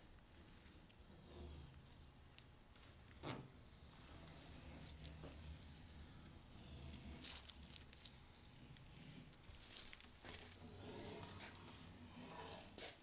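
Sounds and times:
masking tape peeling crackle: 1.7s - 13.0s.

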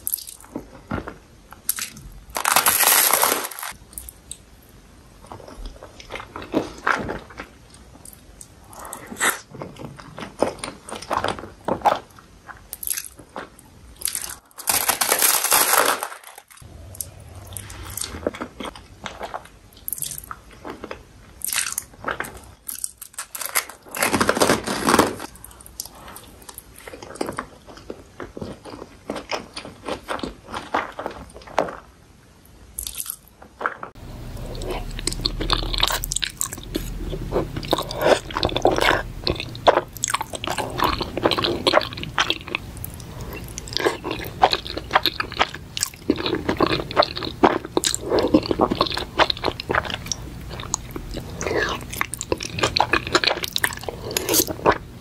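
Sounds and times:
wet chewing: 33.9s - 55.0s.

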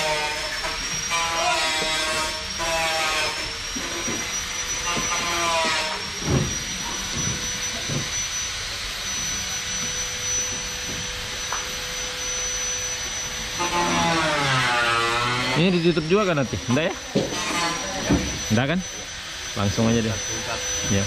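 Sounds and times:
machine high-pitched whine: 0.0s - 21.0s.

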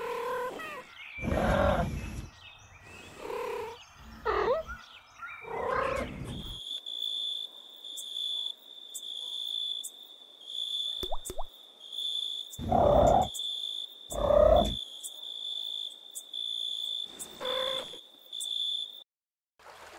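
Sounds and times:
crickets chirping: 6.0s - 19.0s.

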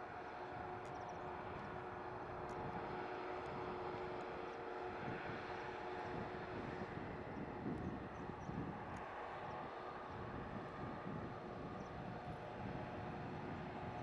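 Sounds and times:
distant diesel locomotive drone: 0.0s - 14.0s.

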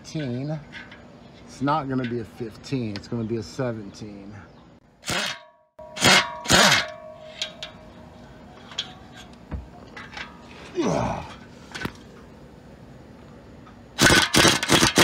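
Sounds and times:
metal tools clanking: 0.0s - 2.8s, 5.1s - 12.0s.

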